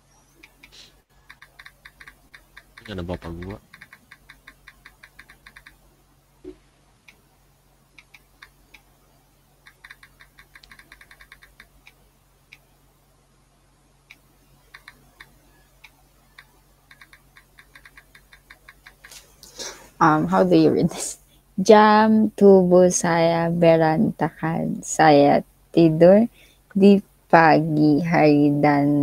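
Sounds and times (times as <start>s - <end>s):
typing on computer keyboard: 1.2s - 5.8s, 9.6s - 11.8s, 16.4s - 19.2s.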